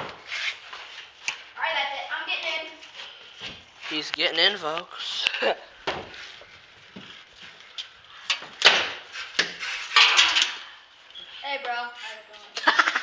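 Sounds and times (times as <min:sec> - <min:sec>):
sharp knocks and clatters: 0:08.3 - 0:10.6.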